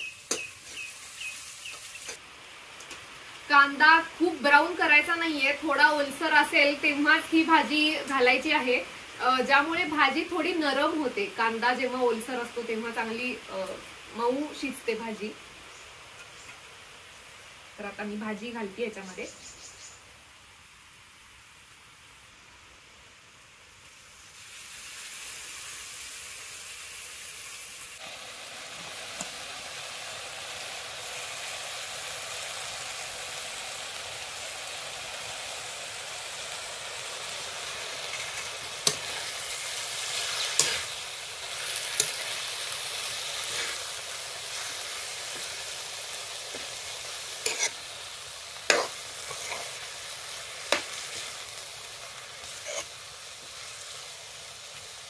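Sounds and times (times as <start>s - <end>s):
greens sizzling in hot oil: 0.0s - 55.0s
spatula scraping metal pan: 47.4s - 47.8s, 48.7s - 49.8s, 52.5s - 52.9s.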